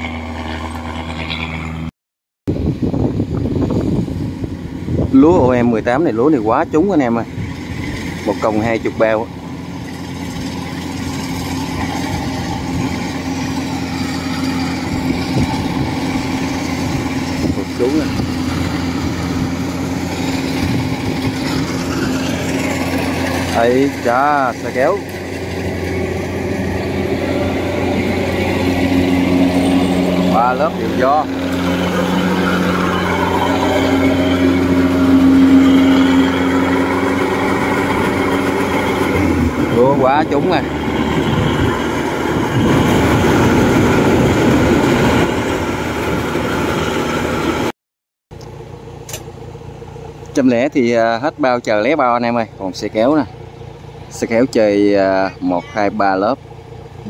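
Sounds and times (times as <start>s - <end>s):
combine harvester diesel engine: 0.0s - 1.9s, 2.5s - 47.7s, 48.3s - 57.0s
threshing machinery rattling: 3.2s - 47.7s.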